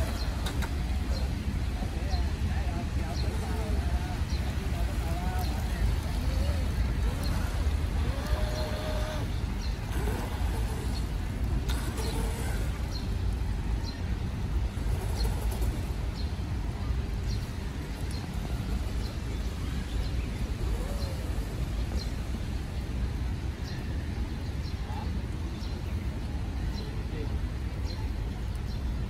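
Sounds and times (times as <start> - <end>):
distant traffic rumble: 0.0 - 29.0.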